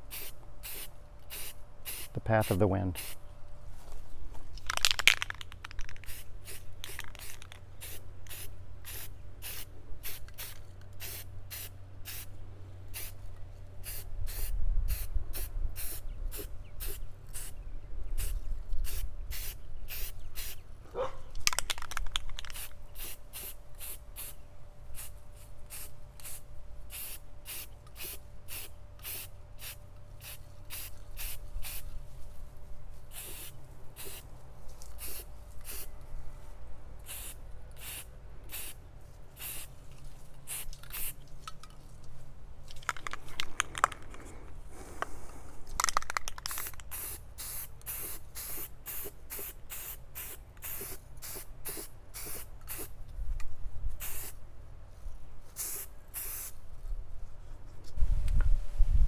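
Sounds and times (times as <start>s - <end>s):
spray paint can hissing bursts: 0.1s - 3.2s, 4.8s - 12.3s, 12.9s - 13.2s, 13.8s - 17.6s, 18.2s - 20.6s, 21.5s - 24.4s, 25.0s - 31.8s, 33.1s - 34.3s, 35.0s - 35.9s, 37.0s - 38.8s, 39.4s - 39.7s, 40.5s - 41.2s, 45.8s - 52.9s, 54.0s - 54.4s, 55.6s - 56.6s.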